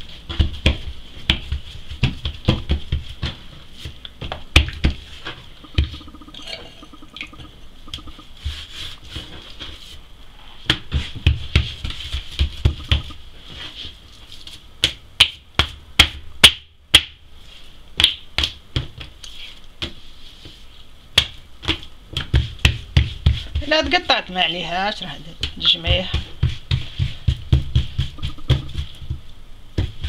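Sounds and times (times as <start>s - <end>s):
hands slapping dough on wood: 0.3s - 5.1s, 10.6s - 13.1s, 14.8s - 17.2s, 18.0s - 19.2s, 19.8s - 24.1s, 25.4s - 30.0s.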